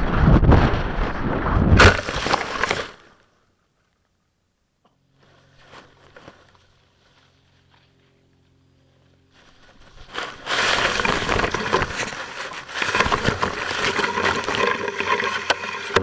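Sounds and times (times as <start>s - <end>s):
leaves and stalks rustling and scraping: 5.1s - 16.0s.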